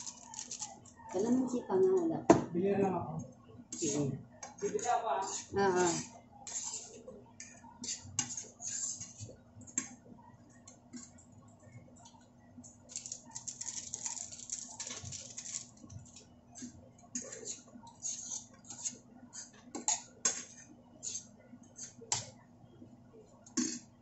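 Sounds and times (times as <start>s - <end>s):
utensils scraping frying pan: 3.7s - 7.0s, 7.8s - 9.3s, 17.2s - 21.9s.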